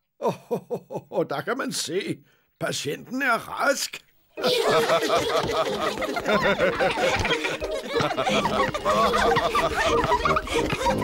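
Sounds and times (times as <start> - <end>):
cartoon children laughing and chattering: 4.3 - 11.0.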